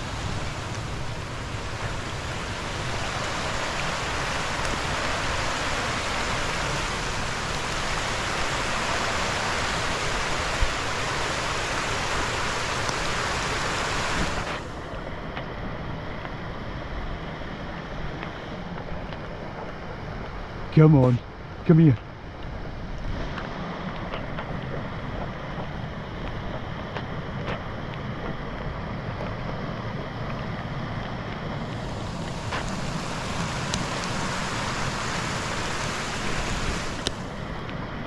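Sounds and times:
stream water rushing: 0.0 - 38.0.

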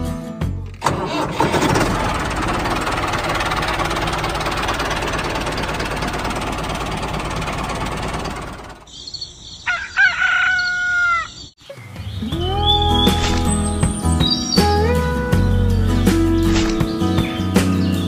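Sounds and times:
tractor engine running: 0.6 - 9.0, 12.6 - 18.0
birds calling: 6.8 - 18.0.

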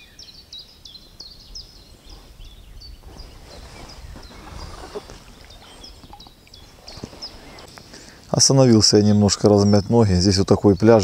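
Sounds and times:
small birds chirping: 0.0 - 11.0
noisy rustle: 1.7 - 8.4.

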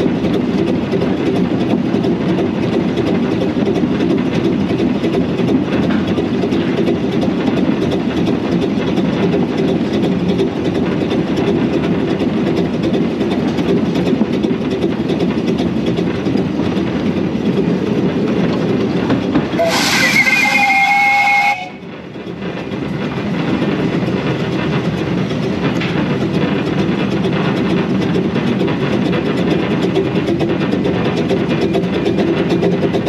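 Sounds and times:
steam locomotive running: 0.0 - 33.0
steam whistle blast: 19.6 - 21.8.

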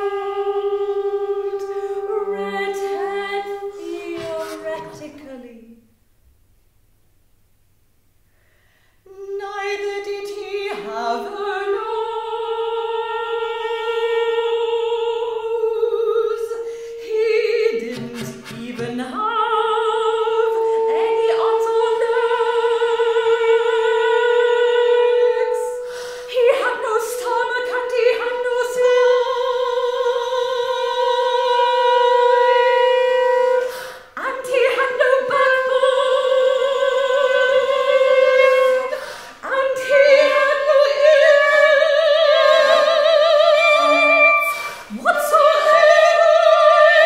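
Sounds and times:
flute: 0.0 - 5.1, 20.4 - 33.7, 37.1 - 47.0
soprano singing with vibrato: 0.0 - 5.9, 9.1 - 47.0
chamber ensemble playing: 42.2 - 46.3.

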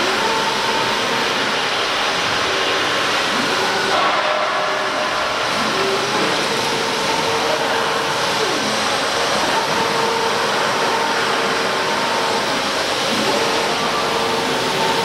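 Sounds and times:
steady rushing machine noise: 0.0 - 15.0
router motor whines: 5.4 - 15.0.

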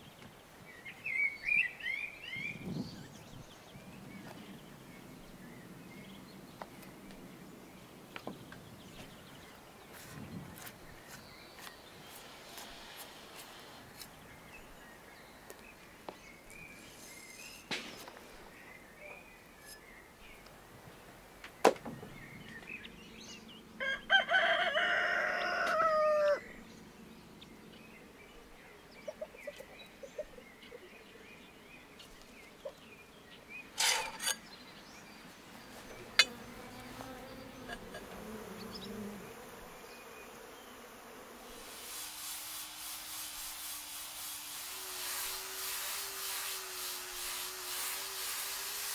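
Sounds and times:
faint outdoor background: 0.0 - 48.9
rooster crowing: 23.8 - 26.5.

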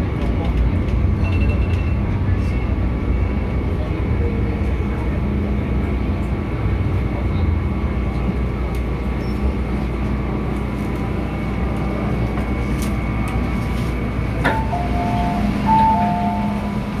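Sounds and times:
train carriage rumble and whine: 0.0 - 17.0
electronic two-tone chime: 14.5 - 16.8.

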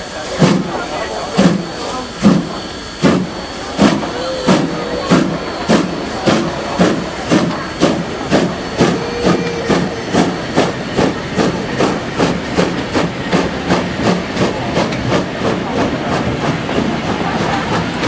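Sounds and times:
steam hissing: 0.0 - 18.0
steam locomotive chuffing: 0.0 - 18.0.

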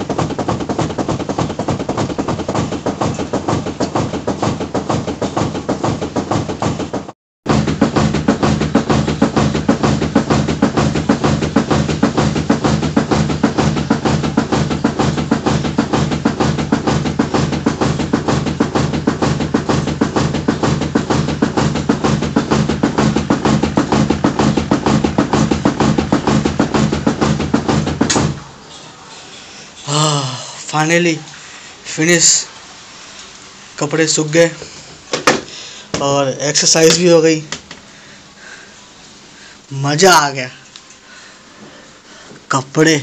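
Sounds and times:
fast dhol drumming: 0.0 - 28.4.

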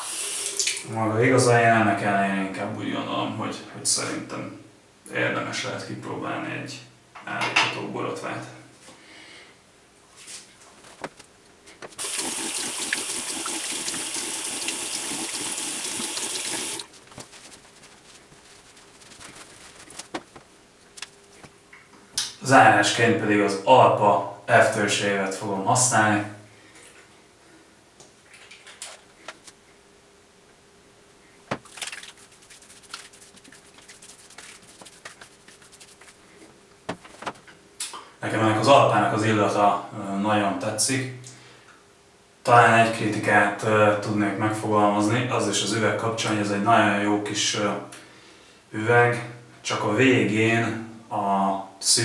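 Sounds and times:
soft pats on face: 16.8 - 21.6, 31.5 - 36.3.

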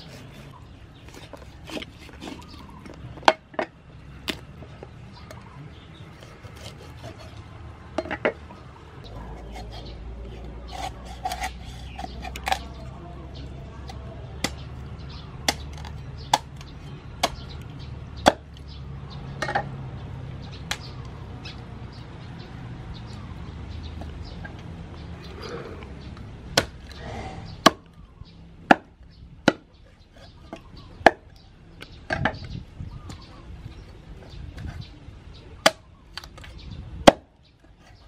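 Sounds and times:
cleaver chopping on wooden board: 15.4 - 17.6, 18.2 - 18.5, 26.6 - 26.8.

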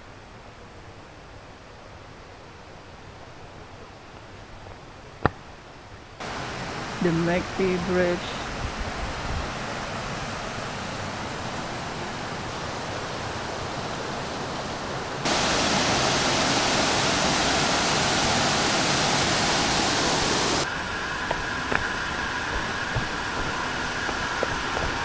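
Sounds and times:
water rushing over rocks: 6.2 - 25.0.

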